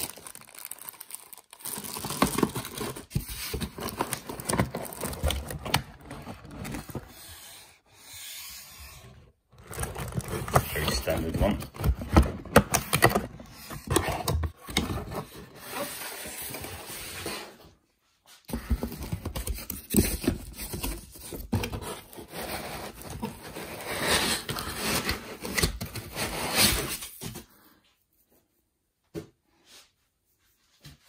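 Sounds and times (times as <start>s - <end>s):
plastic and cardboard packaging rustling: 0.0s - 7.8s, 9.3s - 17.8s, 18.4s - 27.6s.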